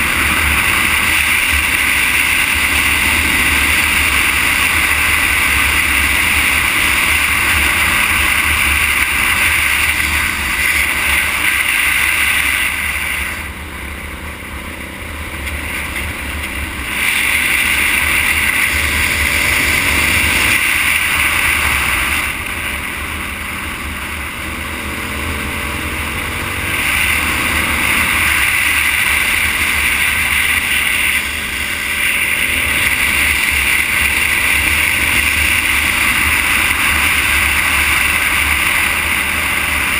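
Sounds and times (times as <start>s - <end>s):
tyre noise on asphalt: 0.0s - 39.9s.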